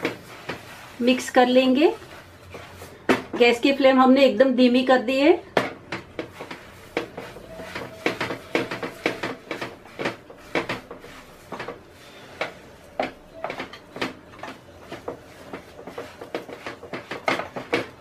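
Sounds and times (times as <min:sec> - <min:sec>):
spatula scraping and knocking in pan: 0:00.0 - 0:03.9, 0:04.8 - 0:18.0.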